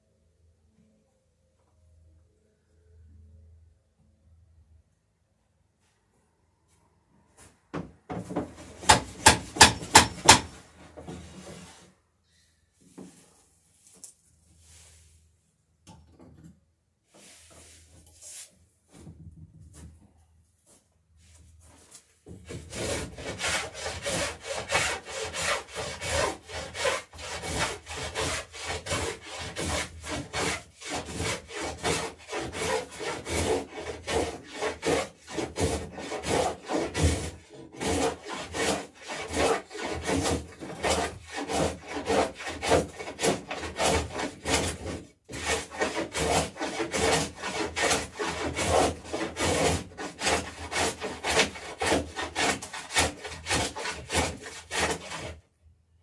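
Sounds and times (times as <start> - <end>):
hand tool planing wood: 8.2 - 11.8, 22.3 - 55.4.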